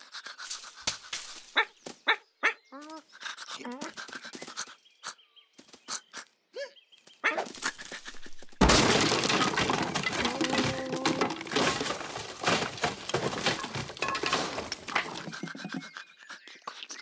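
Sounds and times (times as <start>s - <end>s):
loud cartoon crash: 8.6s - 12.0s
wood cracking and breaking: 8.6s - 15.6s.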